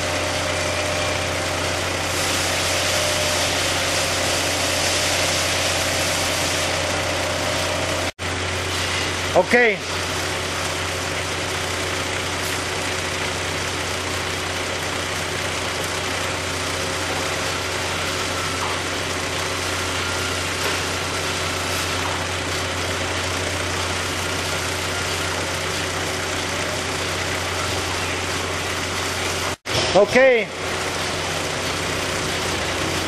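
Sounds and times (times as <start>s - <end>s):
belt conveyor running: 0.0s - 33.0s.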